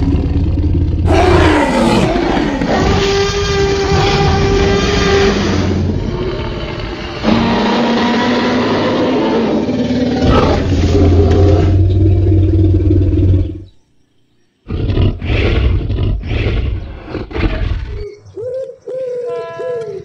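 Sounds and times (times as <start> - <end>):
dinosaur roars: 0.0 - 13.6.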